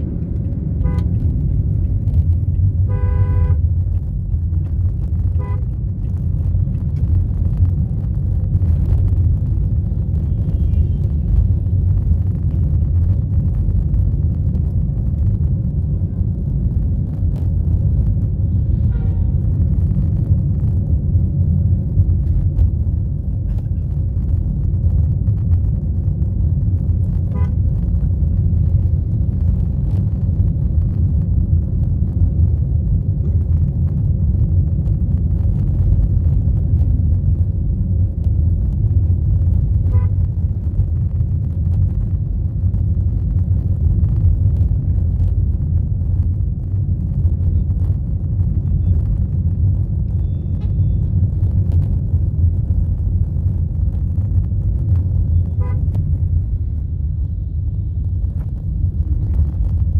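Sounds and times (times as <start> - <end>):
vehicle rumble in traffic: 0.0 - 59.9
car horns honking: 2.8 - 3.6.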